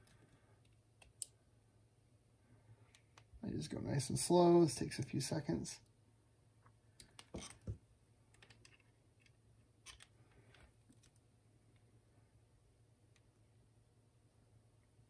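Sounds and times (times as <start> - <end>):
pliers clicking and scraping on metal: 8.3 - 11.2.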